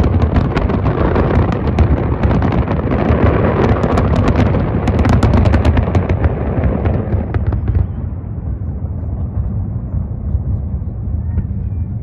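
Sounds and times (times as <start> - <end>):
fireworks crackling: 0.0 - 8.2
rumble of explosions: 0.0 - 12.0.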